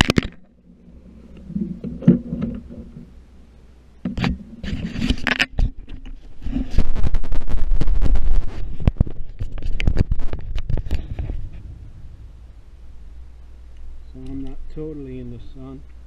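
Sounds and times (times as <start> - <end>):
fingers rubbing on camera: 6.4 - 11.7
low rumble: 6.9 - 14.7.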